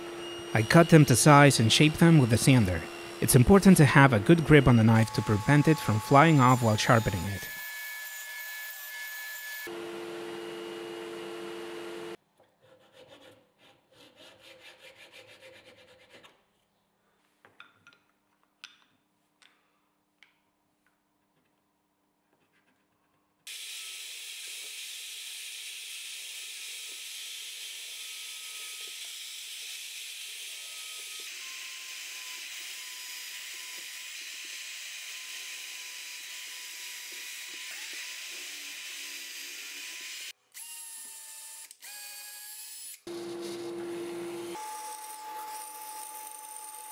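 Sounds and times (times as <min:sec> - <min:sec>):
table saw running: 0:00.0 - 0:12.2, 0:43.1 - 0:46.9.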